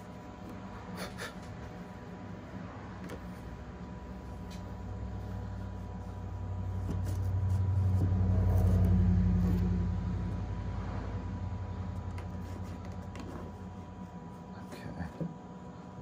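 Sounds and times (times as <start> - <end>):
low rumble with hum: 0.0 - 16.0
knife scraping cardboard: 5.6 - 9.7.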